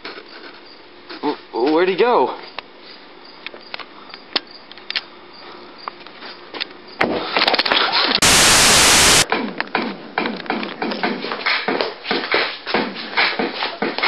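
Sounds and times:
harsh white noise static burst: 8.2s - 9.2s.

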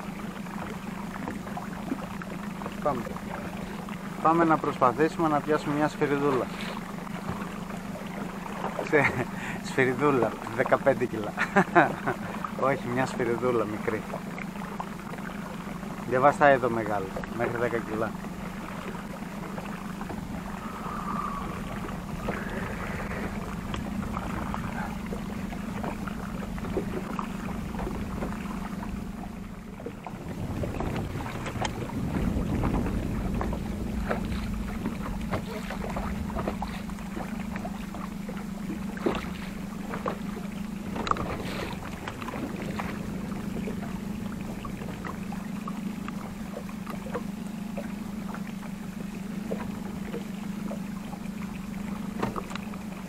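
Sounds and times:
outboard motor idling: 0.0s - 53.0s
rush of wind or water: 0.0s - 53.0s.

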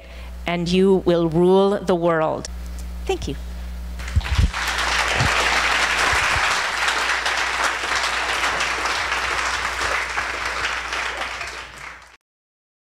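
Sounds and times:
audience applauding: 4.0s - 12.2s.

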